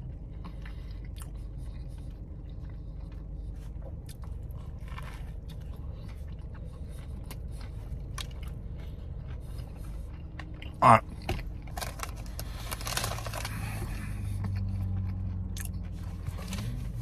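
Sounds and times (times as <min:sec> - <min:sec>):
food crunching: 0:00.0 - 0:17.0
man chewing and biting: 0:00.0 - 0:17.0
steady low hum: 0:00.0 - 0:17.0.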